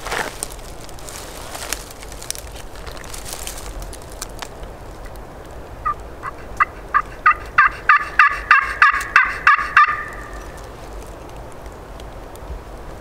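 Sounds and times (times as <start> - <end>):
turkey call yelps: 5.8 - 10.6.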